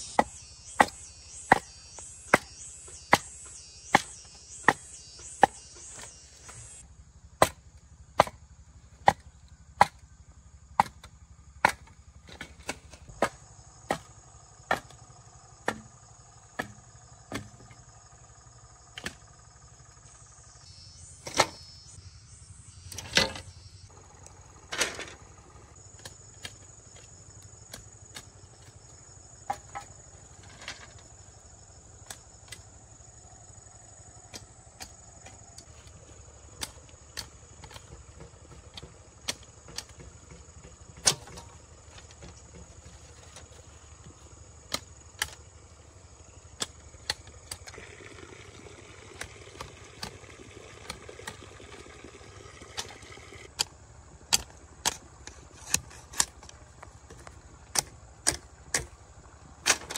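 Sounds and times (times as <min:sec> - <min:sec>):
hand tool striking wood: 0:00.0 - 0:06.7, 0:09.8 - 0:10.0, 0:11.6 - 0:14.1, 0:14.7 - 0:15.0, 0:15.6 - 0:15.9, 0:16.6 - 0:17.7, 0:36.6 - 0:43.0, 0:53.6 - 0:58.9
insects buzzing: 0:00.0 - 0:59.9.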